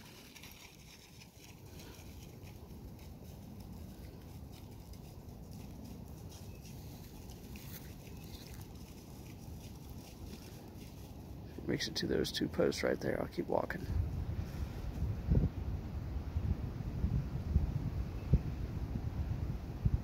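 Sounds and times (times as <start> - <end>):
footsteps through dry leaves: 0.0 - 11.5
wind buffeting microphone: 13.5 - 20.0.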